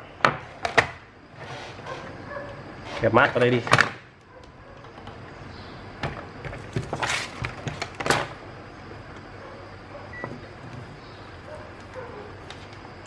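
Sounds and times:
scrapes on workbench: 0:00.3 - 0:03.1.

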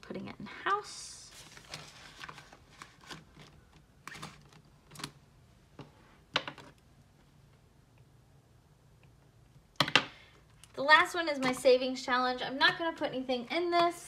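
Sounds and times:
paper rustling and light clicks: 0:01.3 - 0:05.2.

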